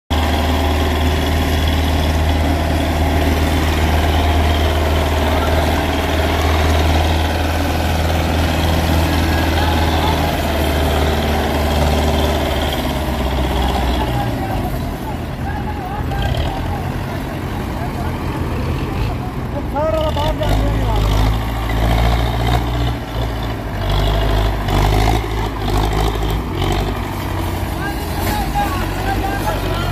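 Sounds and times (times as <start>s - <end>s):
tractor diesel engine droning: 0.1s - 29.9s.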